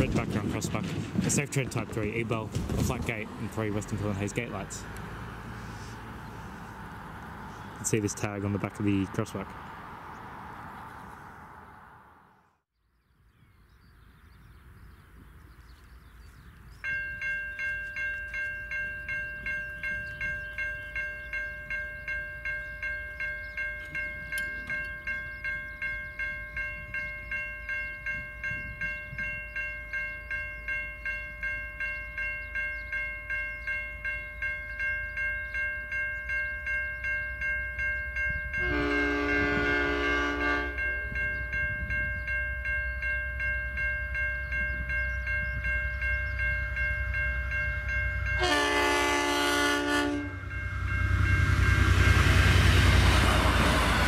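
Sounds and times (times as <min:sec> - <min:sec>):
train rumble: 0:00.0 - 0:12.1, 0:36.2 - 0:54.0
level crossing bells ringing: 0:01.6 - 0:05.8, 0:16.8 - 0:54.0
diesel locomotive horn: 0:38.6 - 0:41.0, 0:48.2 - 0:54.0.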